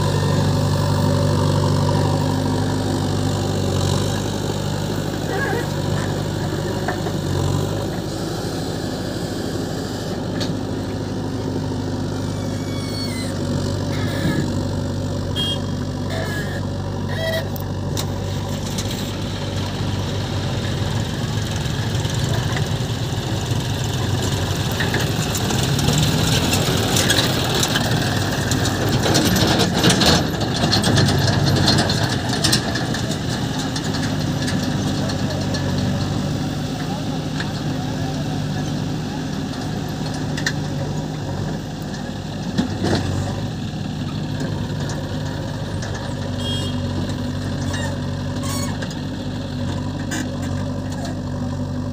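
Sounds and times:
diesel engines running: 0.0 - 51.9
machinery clatter: 17.8 - 51.2.

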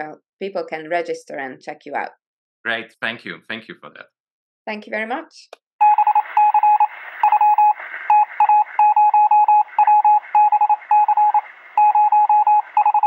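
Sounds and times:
electronic beeps: 5.8 - 13.0
radio static hiss: 5.8 - 13.0.

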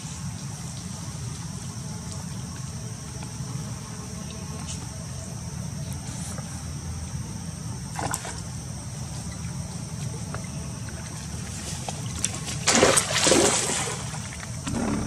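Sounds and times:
steady high hiss: 0.0 - 7.9
water splashing and trickling: 10.9 - 15.0
steady low rumble: 14.6 - 15.0.

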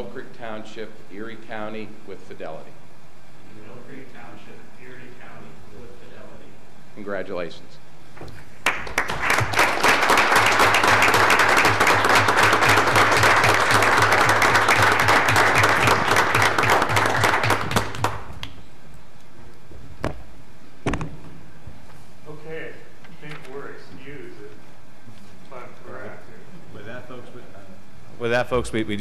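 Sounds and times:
audience applauding: 8.6 - 18.5.

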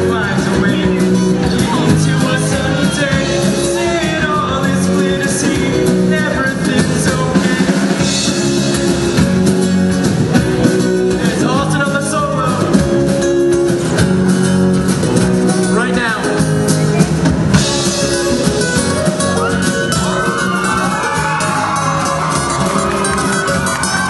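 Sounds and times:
lead vocal singing: 0.0 - 8.8
live rock band playing: 0.0 - 24.0.

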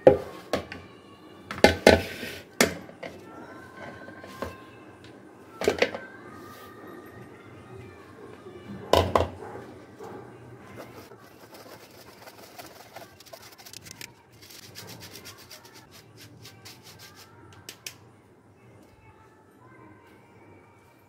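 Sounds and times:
flour rubbed through mesh sieve: 10.7 - 17.4.

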